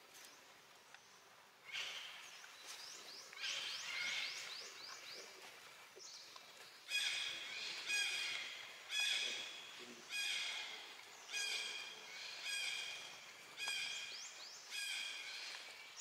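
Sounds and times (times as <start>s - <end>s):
crows cawing: 10.1s - 13.0s.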